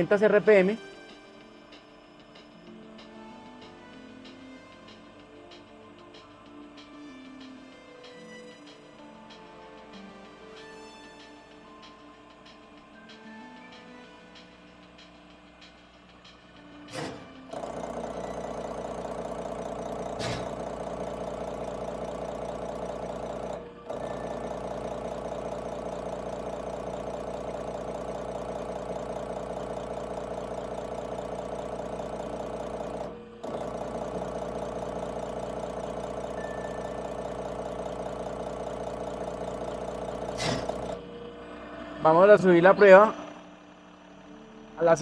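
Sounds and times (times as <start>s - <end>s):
injection pump test bench running: 14.4s - 45.0s.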